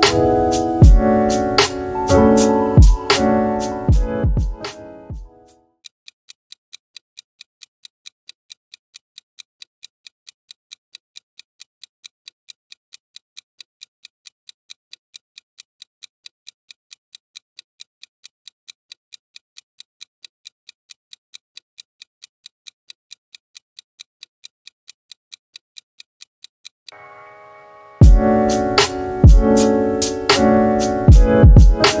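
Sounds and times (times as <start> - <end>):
clock ticking: 0.0 - 5.2, 28.0 - 32.0.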